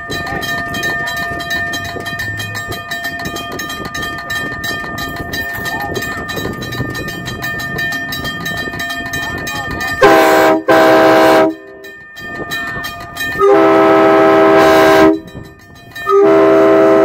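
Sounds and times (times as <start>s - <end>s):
multi-chime train horn: 9.7s - 17.0s.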